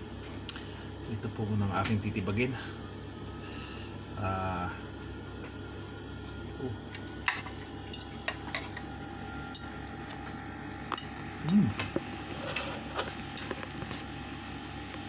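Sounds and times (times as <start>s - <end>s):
short low voice sound: 11.4s - 11.9s.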